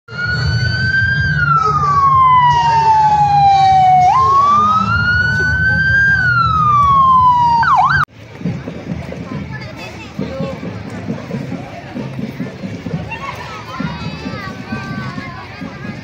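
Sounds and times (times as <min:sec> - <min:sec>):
siren wailing: 0:00.1 - 0:08.1.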